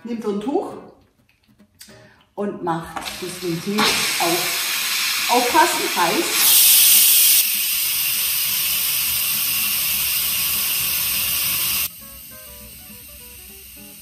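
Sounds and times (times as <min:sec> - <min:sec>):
steam hissing from valve: 0:03.0 - 0:14.0.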